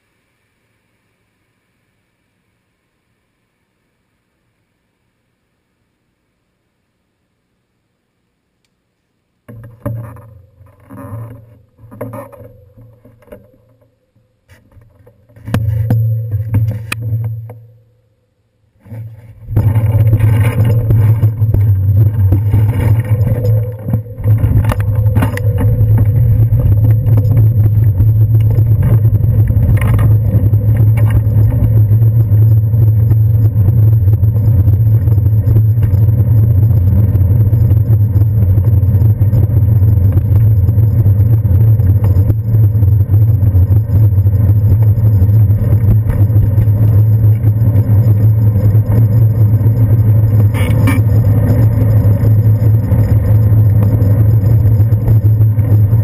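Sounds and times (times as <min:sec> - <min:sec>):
bicycle bumps and knocks: 0:09.5 - 0:13.9, 0:14.5 - 0:17.7, 0:18.9 - 0:32.4
wind and tyre rumble: 0:19.2 - 0:56.0.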